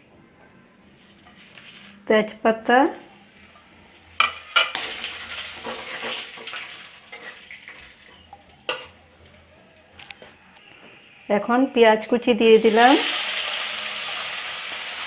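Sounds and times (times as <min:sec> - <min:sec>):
spices sizzling in hot oil: 0:04.2 - 0:08.2, 0:12.5 - 0:15.0.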